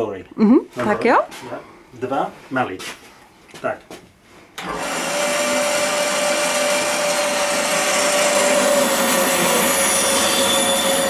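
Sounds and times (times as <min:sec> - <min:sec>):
band saw motor humming: 0:04.6 - 0:11.0.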